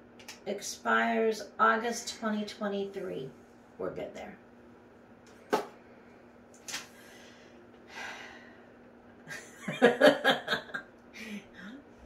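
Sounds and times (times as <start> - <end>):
faint steady hum: 0.0 - 12.0
person breathing: 6.9 - 8.8, 11.1 - 11.9.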